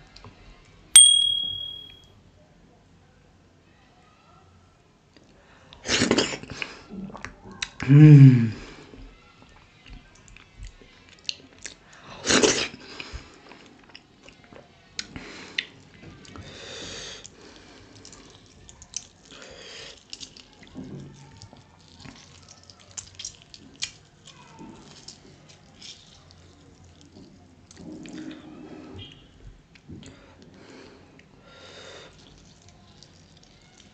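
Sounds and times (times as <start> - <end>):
close chewing: 32.1 - 33.9.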